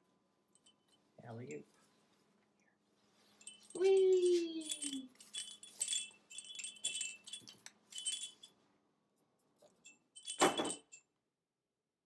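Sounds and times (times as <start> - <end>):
toy bell jingling: 3.4 - 8.6, 9.7 - 11.0.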